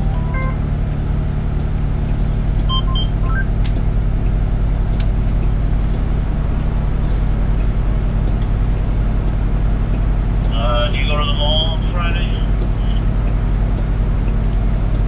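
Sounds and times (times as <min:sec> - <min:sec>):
diesel engine idling: 0:00.0 - 0:15.0
short electronic beeps: 0:02.7 - 0:03.6.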